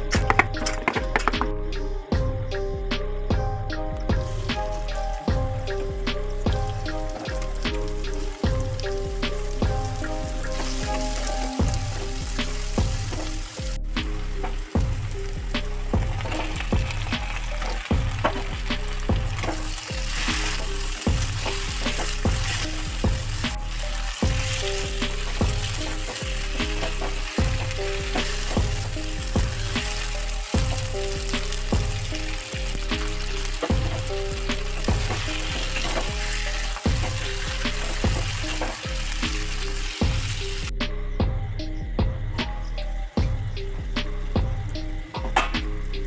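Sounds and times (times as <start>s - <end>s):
food sizzling in oil: 4.2s - 40.7s
wooden spatula scraping wok: 9.4s - 40.5s.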